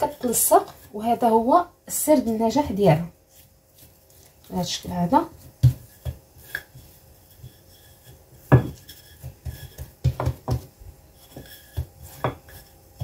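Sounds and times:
rolling pin knocking on worktop: 0:05.5 - 0:06.8, 0:08.3 - 0:13.0.

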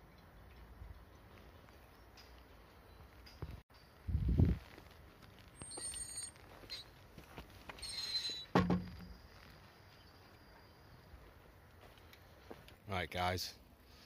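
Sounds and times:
footsteps: 0:03.2 - 0:10.4, 0:11.1 - 0:12.8
faint high chirps: 0:07.8 - 0:11.5.

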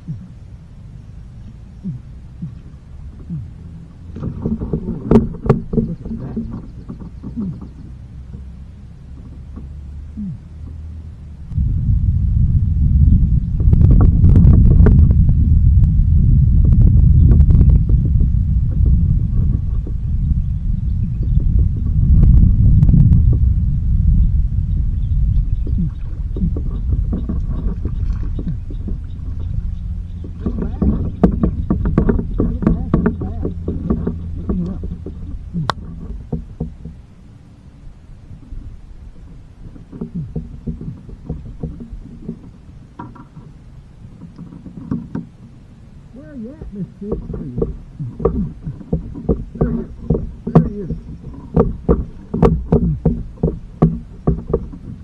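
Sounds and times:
steady low rumble: 0:00.0 - 0:55.0
water splashing against boat: 0:01.6 - 0:11.5, 0:25.6 - 0:55.0.

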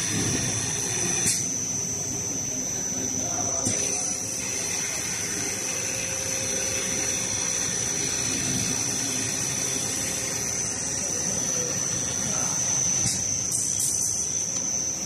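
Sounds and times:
cutting machine with high whine: 0:00.0 - 0:15.0.

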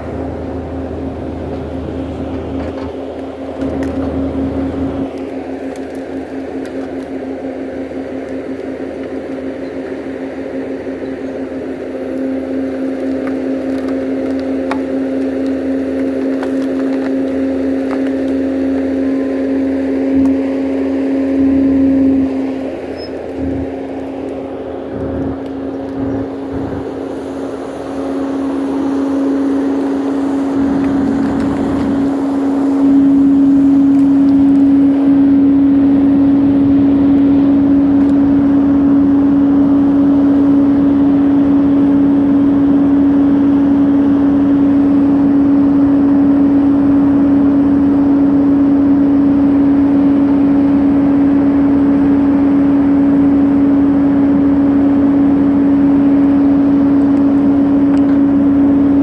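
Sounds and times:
constant hum: 0:00.0 - 0:59.0
diesel engine and hydraulics: 0:00.0 - 0:59.0
faint wood cracks: 0:01.5 - 0:07.4, 0:12.1 - 0:21.0, 0:30.5 - 0:32.2.

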